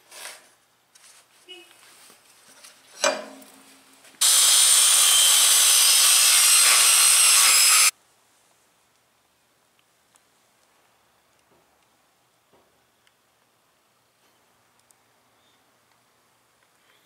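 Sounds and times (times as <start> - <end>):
circular saw cutting wood: 4.2 - 7.9.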